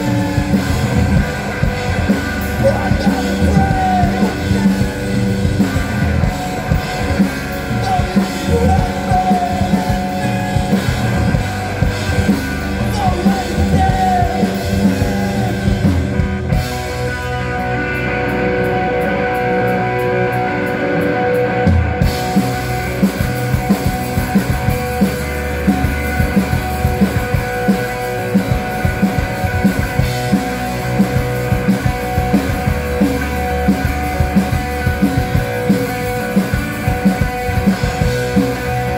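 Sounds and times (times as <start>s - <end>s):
drum kit: 0.0s - 38.9s
electric guitars: 0.0s - 38.9s
person singing: 2.4s - 5.6s, 7.7s - 11.0s, 12.8s - 16.0s.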